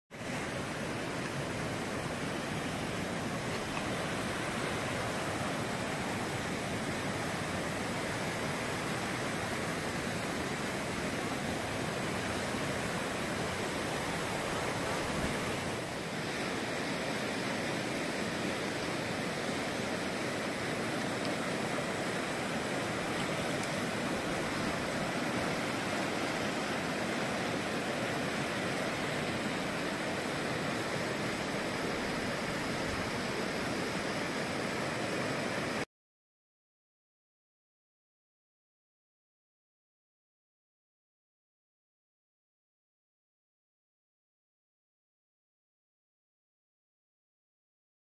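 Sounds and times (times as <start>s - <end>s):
river rushing over rocks: 0.2s - 35.8s.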